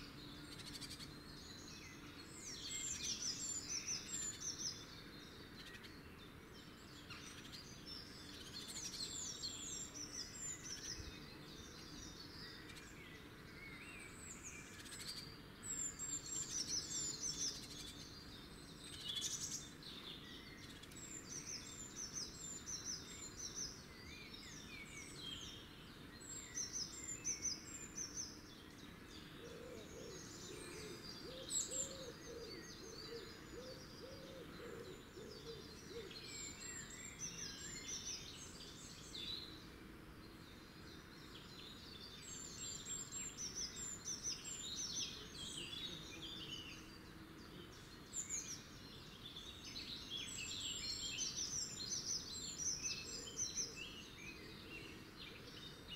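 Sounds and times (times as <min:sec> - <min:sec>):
outdoor background noise: 0:00.0 - 0:55.9
songbirds chirping: 0:00.0 - 0:55.9.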